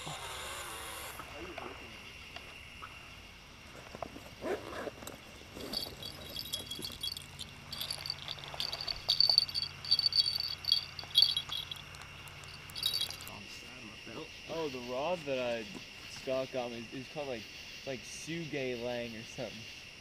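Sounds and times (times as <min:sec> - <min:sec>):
small bells jingling: 0:05.4 - 0:13.6.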